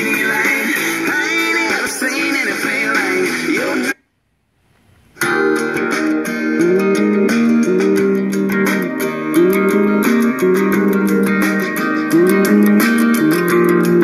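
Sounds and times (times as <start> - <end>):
guitar-led music: 0.0 - 4.0, 5.2 - 14.0
music with wavering lead line: 5.2 - 14.0.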